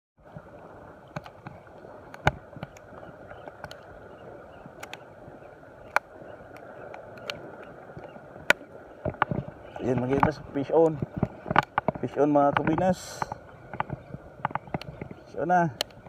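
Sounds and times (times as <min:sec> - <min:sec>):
sea water washing: 0:00.2 - 0:16.0
sharp clicks and knocks: 0:08.0 - 0:16.0.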